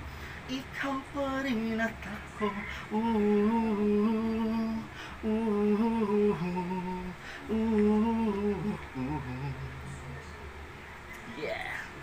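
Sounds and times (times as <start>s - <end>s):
man humming slow melody: 2.5s - 10.2s.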